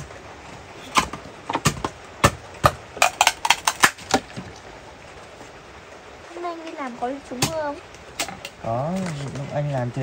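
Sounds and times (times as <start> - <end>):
sharp knocks: 0.9 - 4.5.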